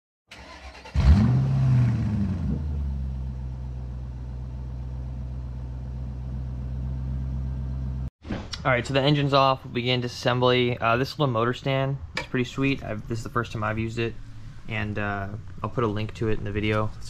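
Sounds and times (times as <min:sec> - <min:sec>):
engine revving then idling: 0:00.6 - 0:08.1.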